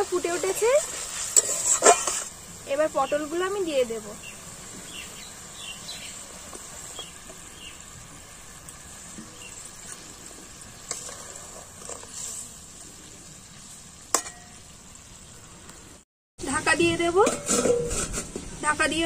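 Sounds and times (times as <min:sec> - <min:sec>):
gravy bubbling and sizzling: 0:00.0 - 0:19.0
spatula striking metal pan: 0:14.1 - 0:14.6, 0:17.2 - 0:18.3.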